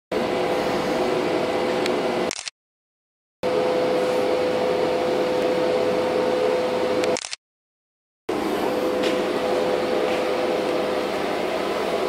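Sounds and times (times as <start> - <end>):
industrial machinery hiss and hum: 0.1 - 2.3, 3.4 - 7.2, 8.3 - 12.0
machinery whine: 0.1 - 2.4, 3.4 - 7.3, 8.3 - 12.0.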